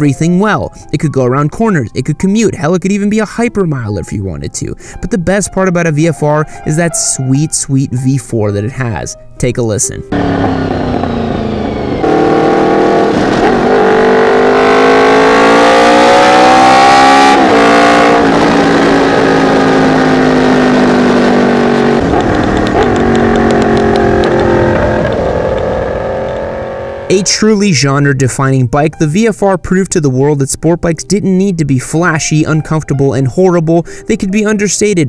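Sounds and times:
motorcycle engine revving: 10.1 - 27.4.

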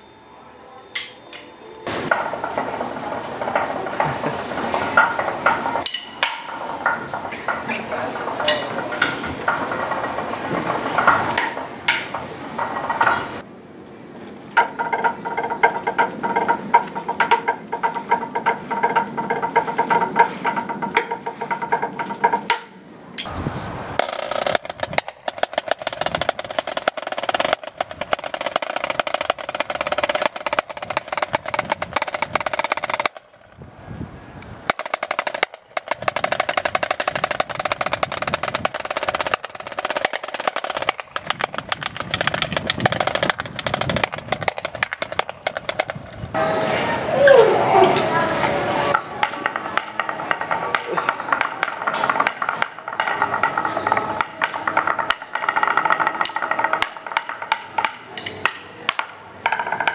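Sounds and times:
snare drum rolls: 24.0 - 33.2, 34.7 - 46.6.

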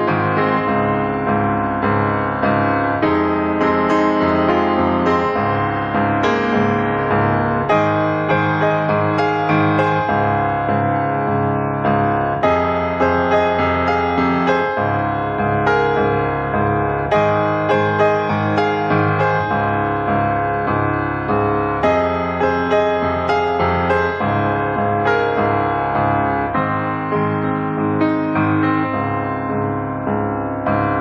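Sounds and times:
piano music: 0.0 - 31.0.

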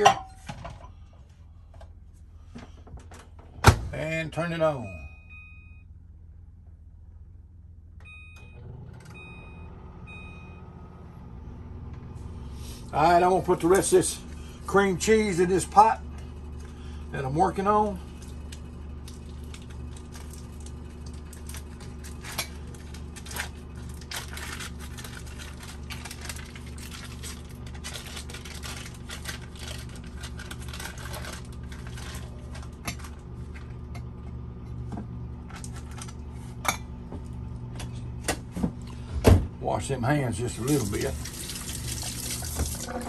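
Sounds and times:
microwave oven humming: 0.0 - 43.0
foil wrappers crinkling: 18.0 - 33.7, 35.5 - 36.2.

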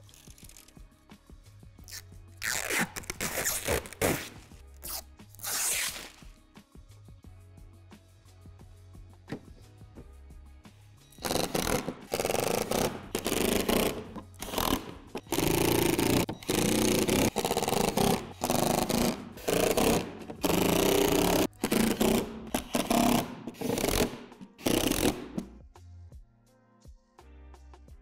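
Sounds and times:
cordless drill driving screws: 11.2 - 25.4.

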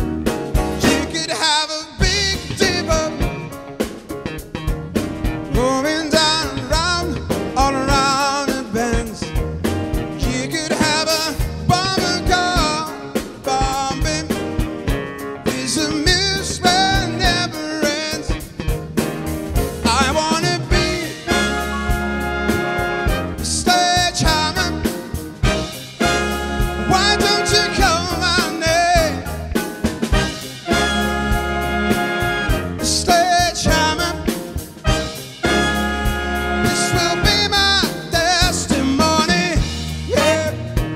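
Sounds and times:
big band playing: 0.0 - 40.9
man singing with vibrato: 0.8 - 3.6, 5.5 - 9.4, 10.1 - 14.7, 15.4 - 18.6, 19.8 - 32.2, 32.8 - 40.9
horn section chords: 10.2 - 18.2, 19.3 - 40.9.

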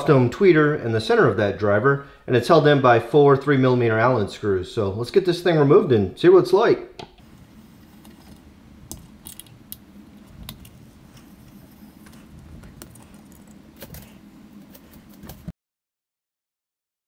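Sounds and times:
low steady hum: 6.8 - 15.5.

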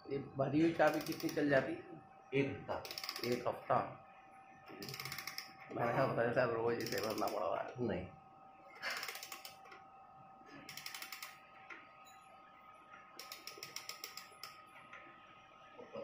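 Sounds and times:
clock ratchet clicking: 0.8 - 1.5, 2.8 - 3.5, 4.8 - 5.6, 6.8 - 7.4, 9.0 - 9.6, 10.7 - 11.4, 13.2 - 14.6.

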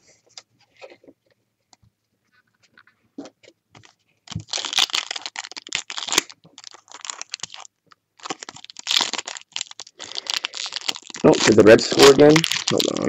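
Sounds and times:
plastic wrapper crinkling: 3.8 - 13.0.

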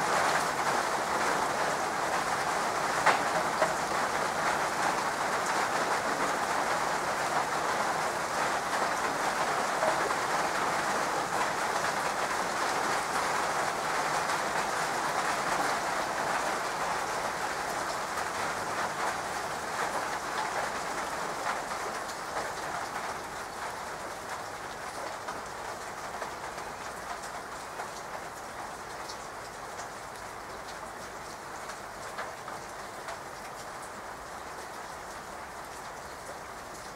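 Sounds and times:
rain on leaves and stone: 0.0 - 36.9.

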